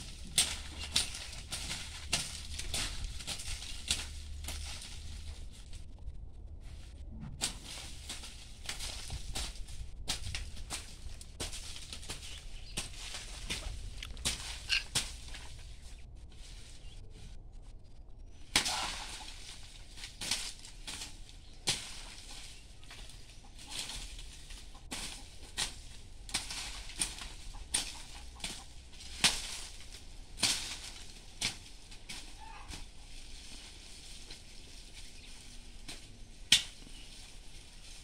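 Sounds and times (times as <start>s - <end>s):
hand tool striking soil: 0.0s - 5.1s, 7.4s - 15.6s, 23.7s - 32.9s, 33.6s - 38.0s
dry leaves rustling: 0.0s - 38.0s.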